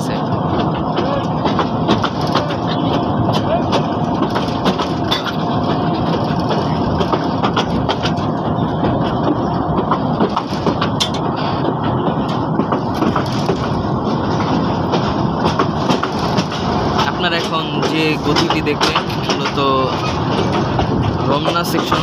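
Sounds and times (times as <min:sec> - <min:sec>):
train coach rattling on track: 0:00.0 - 0:22.0.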